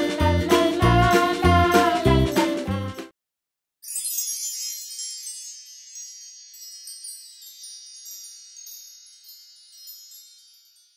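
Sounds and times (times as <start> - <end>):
wind chimes tinkling: 3.8 - 10.9.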